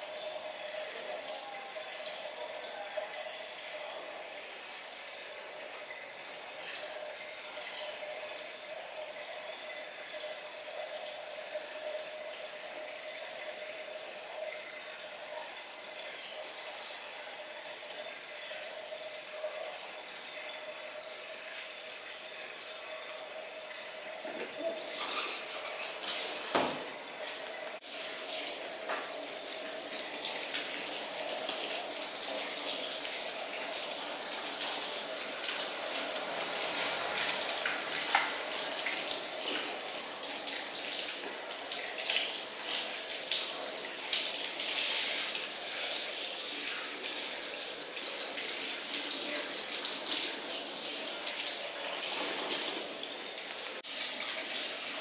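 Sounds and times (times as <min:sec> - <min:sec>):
shower sprayer spraying water: 0:24.2 - 0:55.0.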